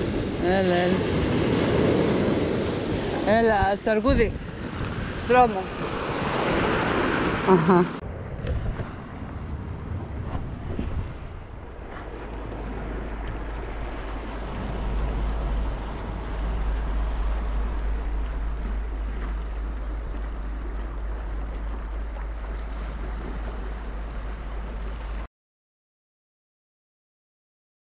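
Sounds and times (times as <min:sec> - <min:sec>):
waves washing over rocks: 0:00.0 - 0:07.5, 0:12.0 - 0:25.3
wind on microphone: 0:00.0 - 0:25.3.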